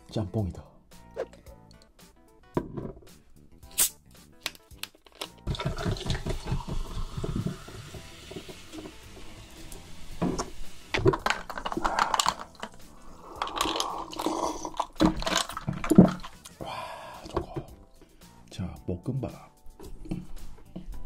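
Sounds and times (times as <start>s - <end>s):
bottle cap clicks: 3.7s - 5.4s
water pouring over ice: 5.2s - 17.4s
sparkling water fizzing: 5.5s - 16.6s
person gulping water: 11.6s - 17.7s.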